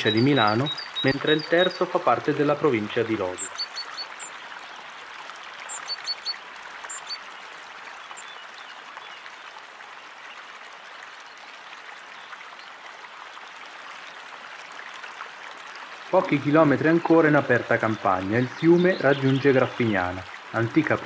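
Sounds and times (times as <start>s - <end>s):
high bird chirps: 0.0s - 1.8s, 3.3s - 4.3s, 5.7s - 7.2s
running water: 0.0s - 21.0s.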